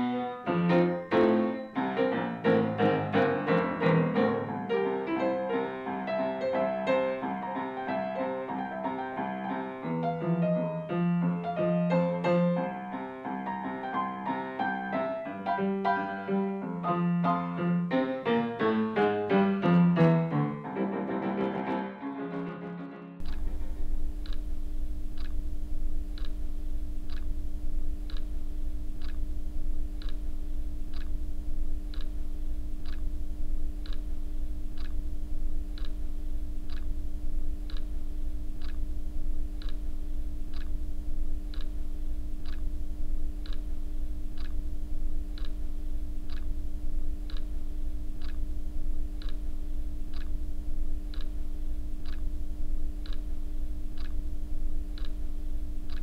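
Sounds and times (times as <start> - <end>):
clock ticking: 0.4 - 5.6, 23.2 - 56.0
low hum: 23.2 - 56.0.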